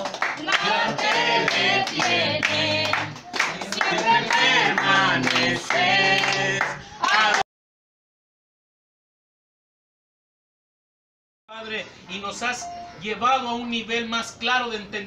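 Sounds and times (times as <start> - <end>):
congregation singing: 0.0 - 7.4
rhythmic hand clapping: 0.0 - 7.4.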